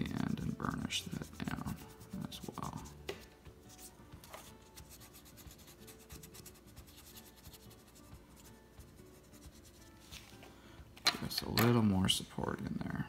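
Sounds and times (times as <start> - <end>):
burnishing tool rubbing tissue: 0.0 - 3.0, 3.8 - 10.4.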